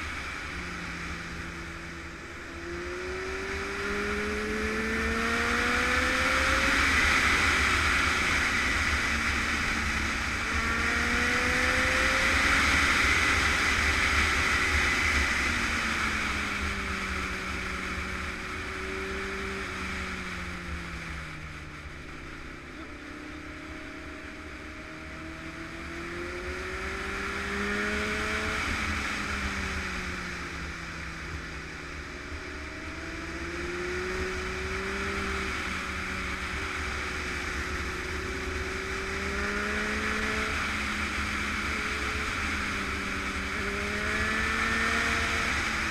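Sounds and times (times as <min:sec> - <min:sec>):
motorcycle engine: 0:00.0 - 0:45.9.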